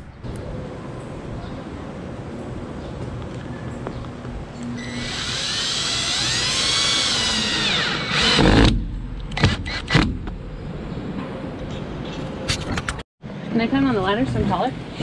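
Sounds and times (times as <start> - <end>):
cordless drill motor whine: 4.8 - 8.4.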